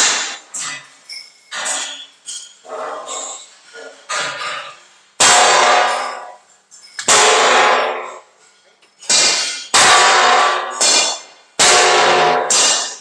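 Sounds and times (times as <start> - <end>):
steel clanging when struck: 9.0 - 13.0.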